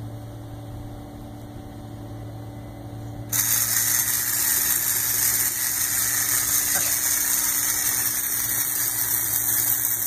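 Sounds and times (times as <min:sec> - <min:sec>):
steady low hum: 0:00.0 - 0:10.0
toy boat motor whirring: 0:03.3 - 0:10.0.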